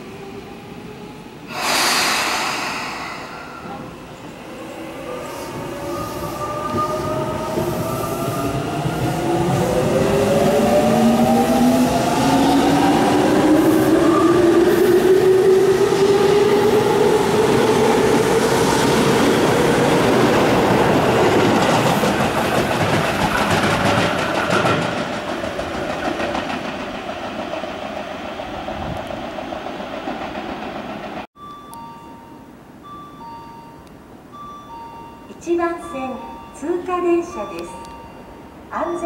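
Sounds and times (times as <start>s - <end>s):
train wheels clattering: 21.0s - 31.3s.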